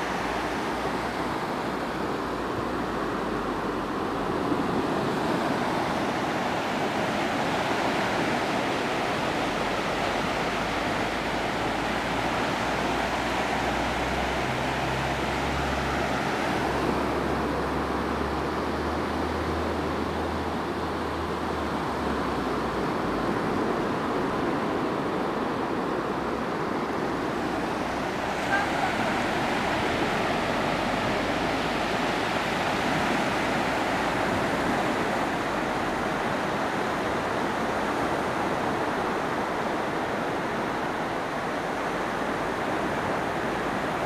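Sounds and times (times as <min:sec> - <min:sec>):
waves washing over sand: 0:00.0 - 0:44.0.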